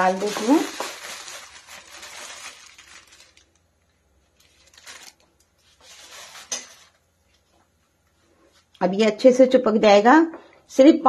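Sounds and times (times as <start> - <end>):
flour sprinkling dry rustle: 0.0 - 3.6, 4.2 - 7.0.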